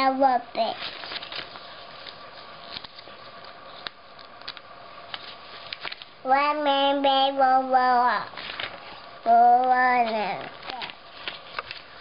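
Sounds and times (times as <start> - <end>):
paper pages rustling: 0.6 - 6.2, 8.2 - 12.0.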